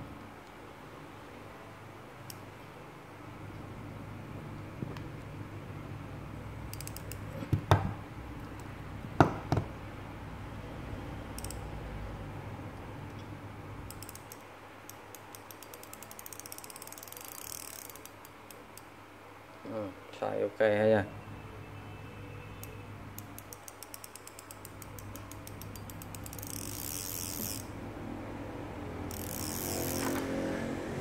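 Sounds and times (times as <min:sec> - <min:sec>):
fishing reel gears whirring: 0:06.7 - 0:07.2, 0:13.9 - 0:14.4, 0:15.1 - 0:18.2, 0:23.4 - 0:27.8, 0:29.0 - 0:30.4
sharp clicks: 0:22.6 - 0:26.9.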